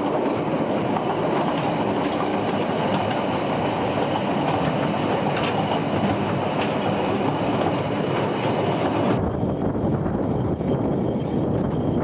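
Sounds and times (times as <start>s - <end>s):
train wheels rumbling on track: 0.0s - 12.0s
clicks and clatter: 4.4s - 6.8s.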